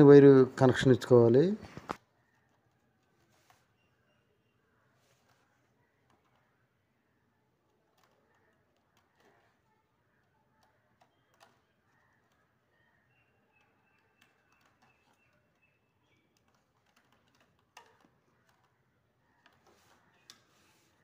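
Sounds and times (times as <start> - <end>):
screwdriver clicks and taps: 6.0 - 6.6, 7.7 - 12.5, 13.5 - 18.8.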